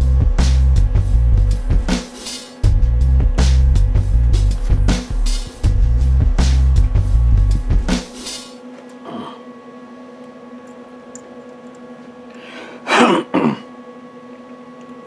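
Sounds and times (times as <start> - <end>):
faint steady hum: 0.0 - 15.0
person clearing throat: 9.0 - 9.5, 12.8 - 13.7.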